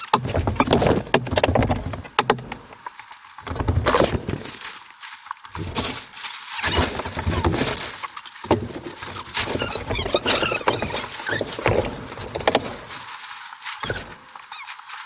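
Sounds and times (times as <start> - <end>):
plastic sheeting rustling and crackling: 3.1 - 15.0.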